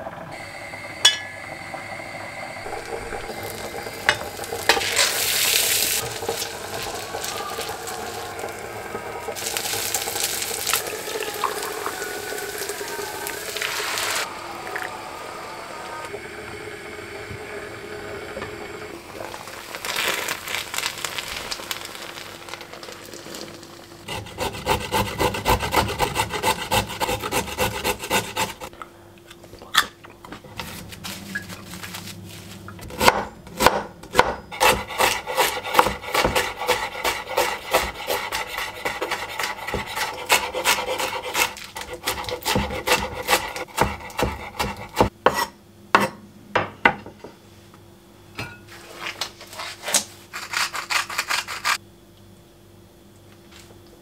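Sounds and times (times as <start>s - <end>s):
knife chopping on a cutting board: 32.9s - 46.2s.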